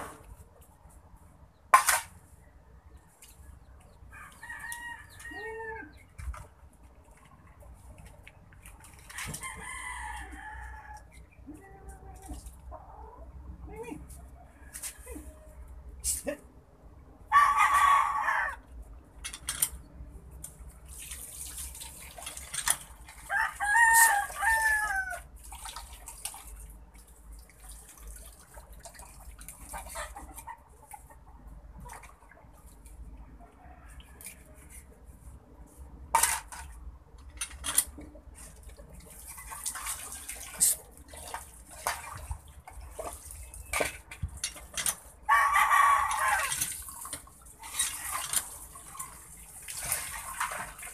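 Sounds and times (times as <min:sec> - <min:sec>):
rooster crowing: 0:04.1 - 0:05.9, 0:17.3 - 0:18.7, 0:23.3 - 0:25.3, 0:45.3 - 0:46.6
chickens clucking: 0:29.5 - 0:32.7.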